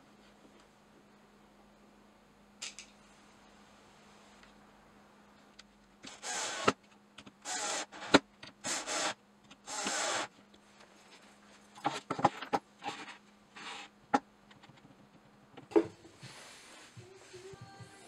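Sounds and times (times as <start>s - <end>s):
cordless drill driving screws: 6.1s - 6.8s, 7.4s - 10.3s.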